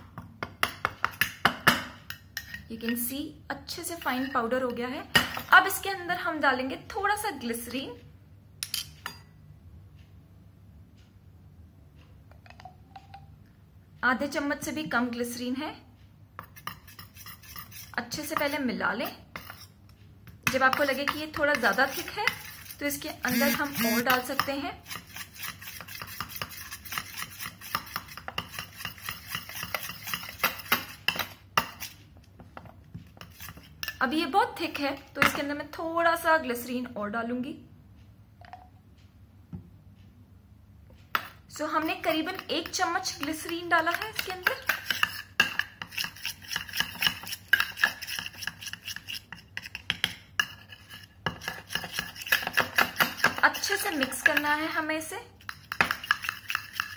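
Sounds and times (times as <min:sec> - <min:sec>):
metal spoon scraping steel bowl: 0:02.1 - 0:03.0, 0:03.8 - 0:05.9, 0:16.4 - 0:19.8, 0:20.5 - 0:32.0, 0:33.1 - 0:34.2, 0:41.2 - 0:56.9.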